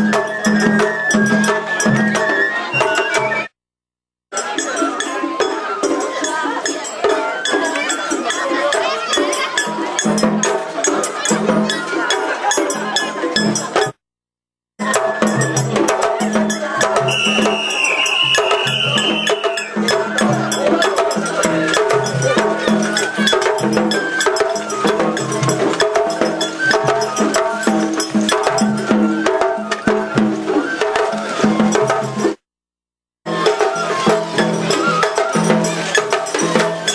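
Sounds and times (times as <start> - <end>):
sharp clacking percussion: 0.0 - 3.5, 4.3 - 14.0, 14.8 - 32.4, 33.3 - 36.9
high flute: 0.0 - 3.6, 14.8 - 16.1, 16.9 - 32.3, 33.3 - 36.7.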